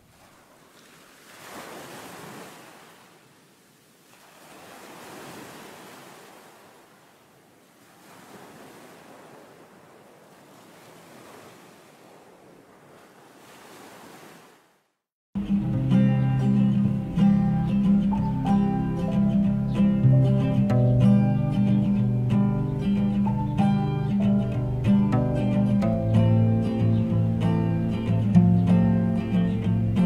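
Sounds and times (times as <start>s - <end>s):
waves washing onto stony shore: 0.0s - 14.6s
strummed acoustic guitar music: 15.4s - 30.0s.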